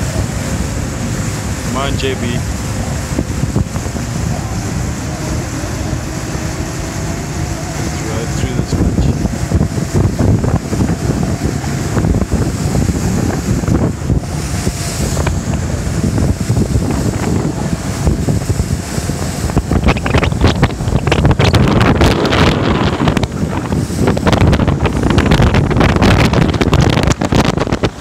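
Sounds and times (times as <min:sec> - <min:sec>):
water rushing past boat: 0:00.0 - 0:28.0
wind buffeting microphone: 0:00.0 - 0:28.0.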